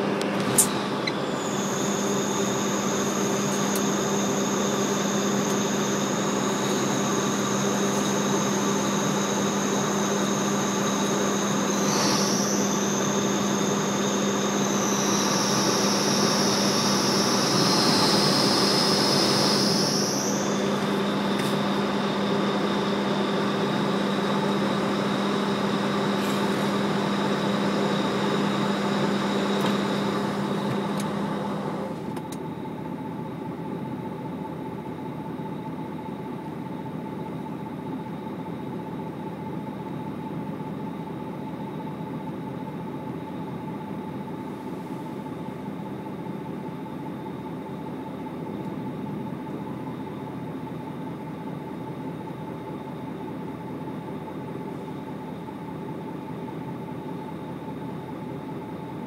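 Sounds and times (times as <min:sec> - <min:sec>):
high whining tones: 0:00.0 - 0:32.1
machinery and fans humming: 0:00.0 - 0:59.0.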